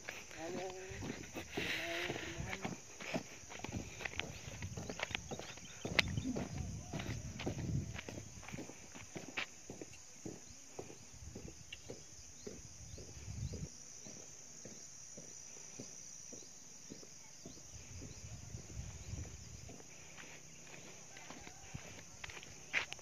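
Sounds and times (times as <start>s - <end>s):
footsteps on dirt path: 0.0s - 23.0s
wind rumble on microphone: 3.6s - 8.8s, 11.1s - 13.7s, 17.6s - 20.1s.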